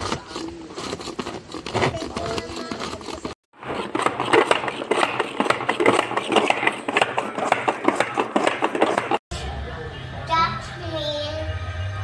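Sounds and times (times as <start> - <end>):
hand food chopper clattering: 0.0 - 9.2.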